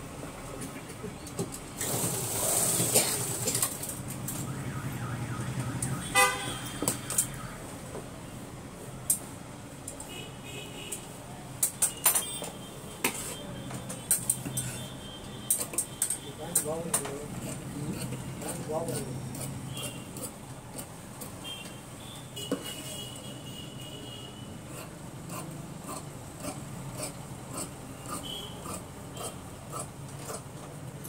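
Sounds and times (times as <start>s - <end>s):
vehicle horn tooting: 4.5s - 7.6s, 21.4s - 24.5s.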